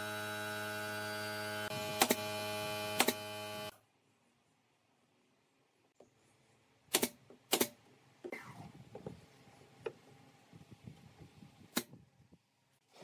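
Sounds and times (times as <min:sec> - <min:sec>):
nail gun shots: 0:01.7 - 0:03.3, 0:06.9 - 0:07.8.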